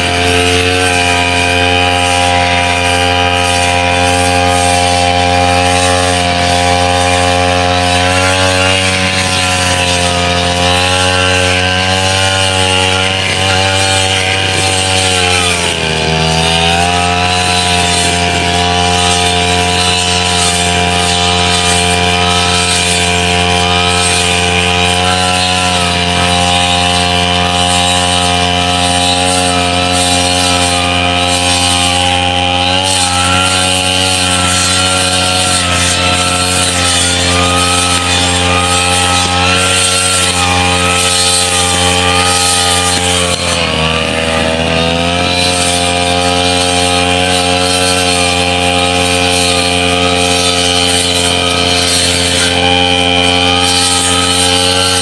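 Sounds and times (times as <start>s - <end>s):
brush cutter engine running: 0.0s - 55.0s.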